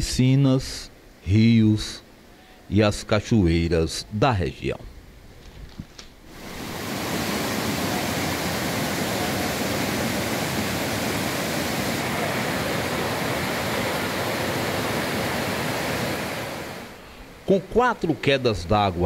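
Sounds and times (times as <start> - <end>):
water rushing over rocks: 6.3 - 17.0.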